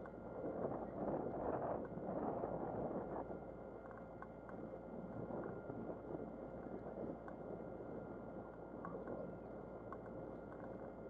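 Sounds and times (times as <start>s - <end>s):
wind: 0.0s - 11.0s.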